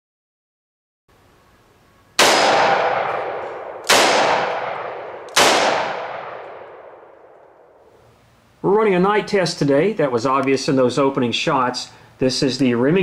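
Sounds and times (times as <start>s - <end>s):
revolver gunshots: 2.2s - 7.8s.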